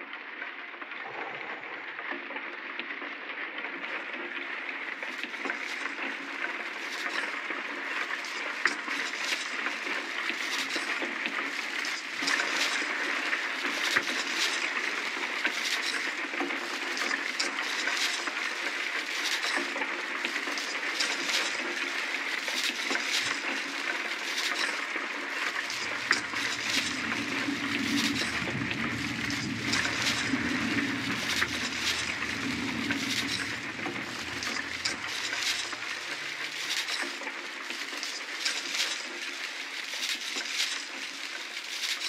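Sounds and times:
low drone: 1.0s - 2.2s, 25.6s - 36.8s
crackling hissing texture: 20.2s - 42.0s.

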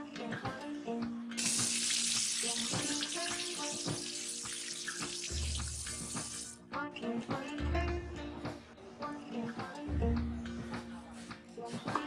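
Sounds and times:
soft background music: 0.0s - 12.0s
tap running into a sink: 1.4s - 6.6s
tomatoes rinsed by hand: 1.4s - 6.6s.

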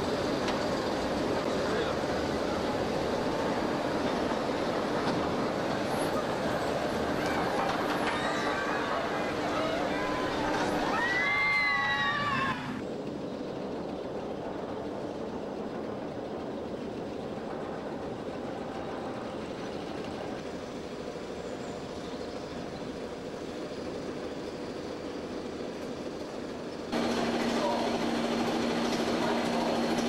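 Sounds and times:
roller coaster rolling rumble: 0.0s - 30.0s.

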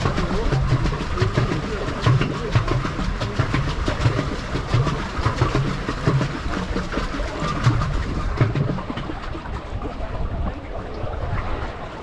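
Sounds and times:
water slapping against boat hull: 0.0s - 12.0s.

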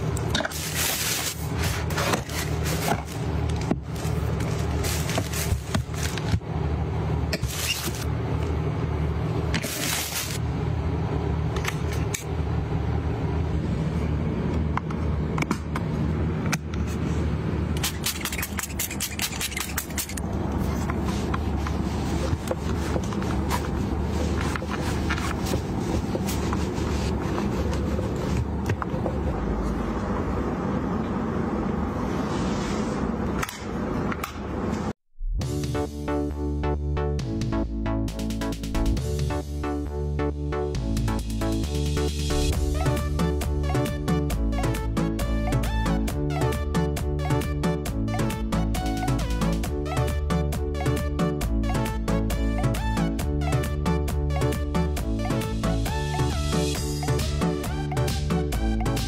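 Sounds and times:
steady low hum: 0.0s - 50.8s
handling scrapes and clicks: 17.8s - 28.9s.

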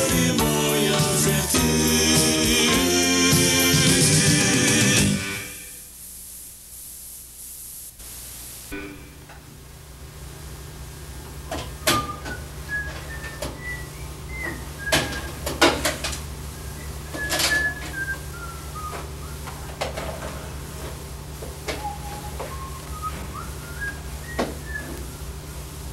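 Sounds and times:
low electrical hum: 5.2s - 25.9s
person whistling: 11.8s - 15.4s, 16.6s - 19.7s, 21.7s - 25.6s.

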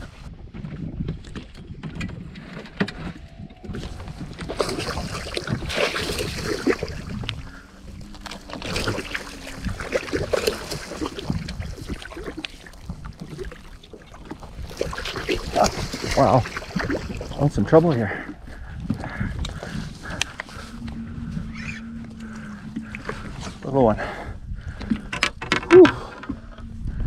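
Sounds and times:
wind rumble on microphone: 0.0s - 27.0s
fish thrashing and splashing: 3.2s - 17.6s.

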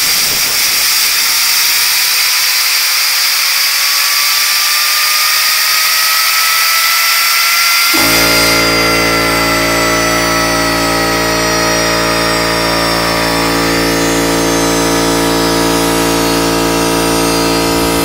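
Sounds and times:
gyroscope rotor hiss and whine: 0.0s - 18.0s
low multi-tone hum: 8.0s - 18.0s.

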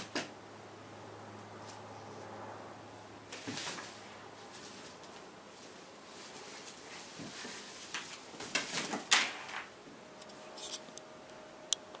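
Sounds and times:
nylon fabric rustling: 3.3s - 9.7s.

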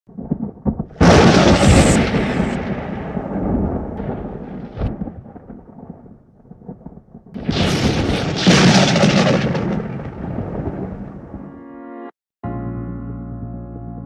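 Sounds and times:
loud cinematic boom: 1.0s - 5.3s.

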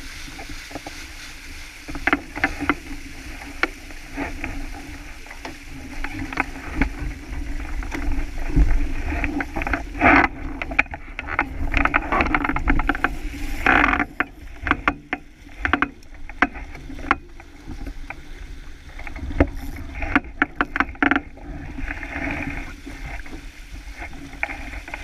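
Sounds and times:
water rushing along hull: 0.0s - 25.0s.

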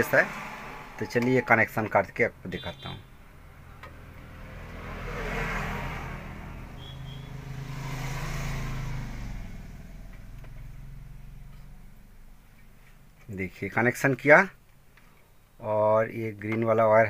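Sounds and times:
passing motor vehicle engine: 0.0s - 13.3s.

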